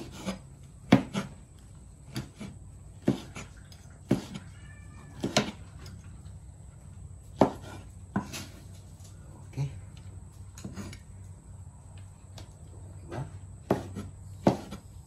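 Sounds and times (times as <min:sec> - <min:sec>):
cleaver chopping on wooden board: 0:00.0 - 0:01.4, 0:02.1 - 0:04.4, 0:05.2 - 0:05.6, 0:07.4 - 0:08.5, 0:13.6 - 0:14.9
cat meowing: 0:04.2 - 0:05.6.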